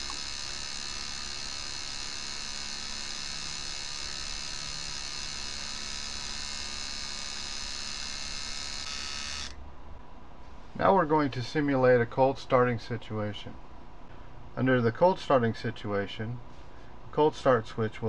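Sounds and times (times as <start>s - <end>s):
electrical buzz: 0.0s - 9.6s.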